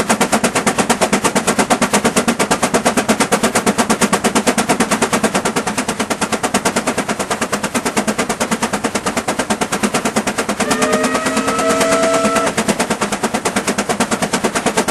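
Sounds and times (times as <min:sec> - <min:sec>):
steam engine exhaust chuffing: 0:00.0 - 0:14.9
steam whistle: 0:10.6 - 0:12.7.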